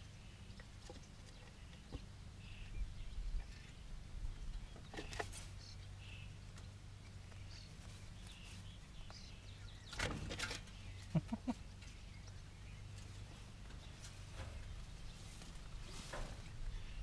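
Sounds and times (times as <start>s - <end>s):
small birds chirping: 0.0s - 17.0s
rustles in grass: 7.2s - 17.0s.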